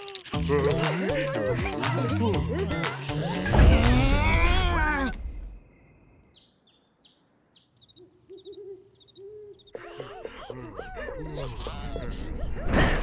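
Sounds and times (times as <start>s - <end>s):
loud cartoon music: 0.3s - 4.9s
owl hooting: 7.8s - 9.8s.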